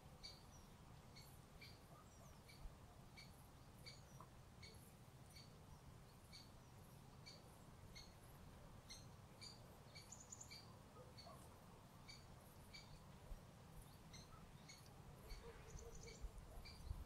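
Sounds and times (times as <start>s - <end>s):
small bird chirping: 0.2s - 17.0s.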